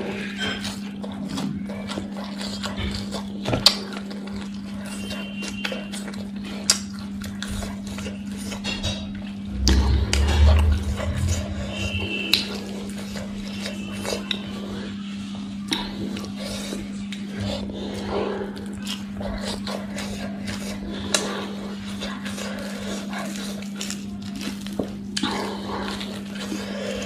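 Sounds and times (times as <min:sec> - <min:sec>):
steady low hum: 0:08.7 - 0:13.8
low thump: 0:09.5 - 0:12.2.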